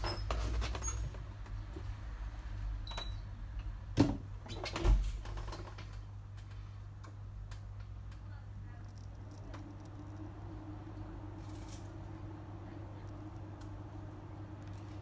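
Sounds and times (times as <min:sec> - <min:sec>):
low hum: 0:08.4 - 0:15.0.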